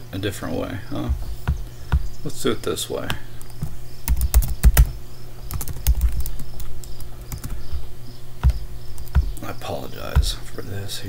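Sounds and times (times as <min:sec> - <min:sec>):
steady low hum: 0:00.0 - 0:11.0
typing on computer keyboard: 0:04.1 - 0:04.9, 0:05.5 - 0:07.5.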